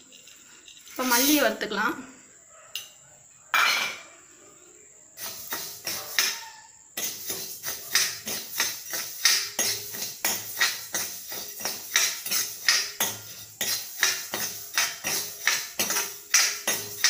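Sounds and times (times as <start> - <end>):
seeds rattling against pan: 0.0 - 1.6, 5.2 - 17.0
spatula scraping seeds in pan: 0.8 - 1.6, 5.2 - 17.0.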